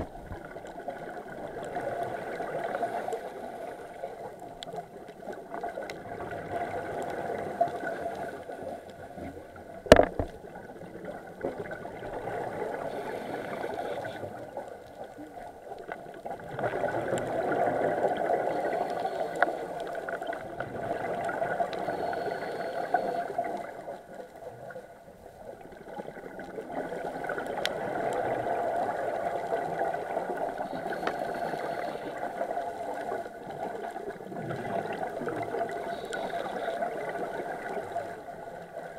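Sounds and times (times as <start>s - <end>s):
bubbles gurgling underwater: 0.0s - 3.2s, 4.7s - 18.8s, 20.0s - 22.0s, 25.5s - 31.2s, 32.2s - 38.9s
diver breathing through regulator: 12.8s - 14.4s, 18.4s - 20.0s, 21.8s - 23.7s, 30.6s - 32.4s.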